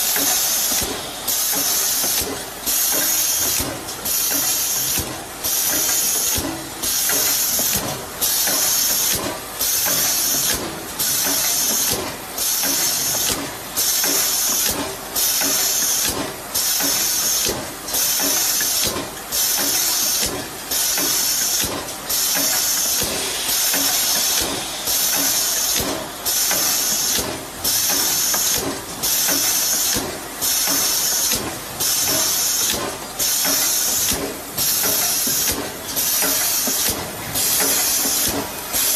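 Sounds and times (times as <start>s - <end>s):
pneumatic air hissing: 22.1s - 38.9s.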